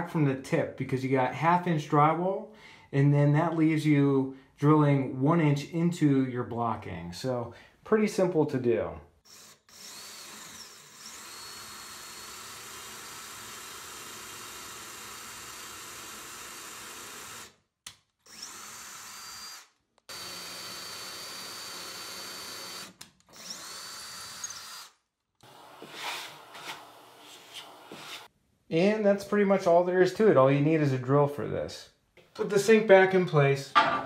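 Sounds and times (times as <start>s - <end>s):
cordless drill whining: 9.3s - 17.6s, 18.2s - 28.3s.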